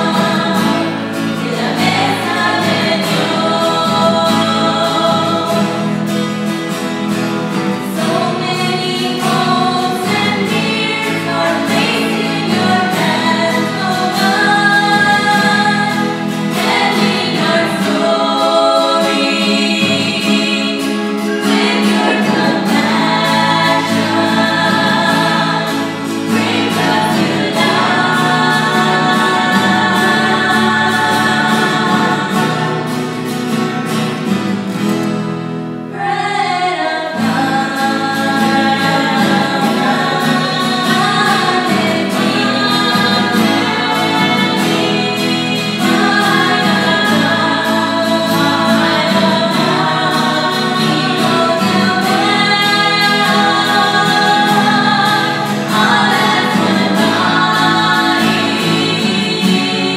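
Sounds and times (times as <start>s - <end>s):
women singing worship song: 0.0s - 34.6s, 35.9s - 59.9s
acoustic guitars playing: 0.0s - 59.9s.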